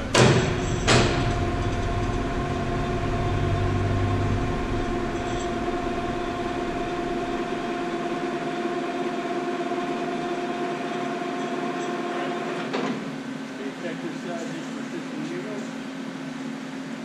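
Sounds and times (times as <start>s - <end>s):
machine hum with high whine: 0.0s - 17.0s
metal clanks with ringing: 0.1s - 1.5s, 5.1s - 5.6s.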